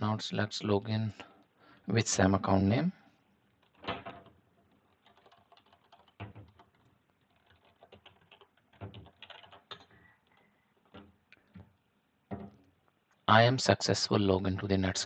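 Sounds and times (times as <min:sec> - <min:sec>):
faint keyboard typing: 0:03.4 - 0:11.8.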